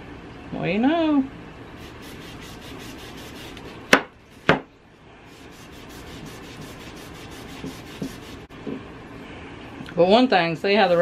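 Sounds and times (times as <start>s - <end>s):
cloth rag rubbing wood: 1.8s - 3.8s, 5.3s - 8.5s.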